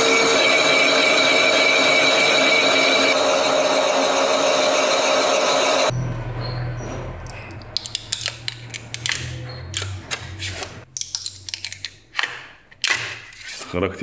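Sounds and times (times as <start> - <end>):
boring machine hum: 0.0 - 7.4.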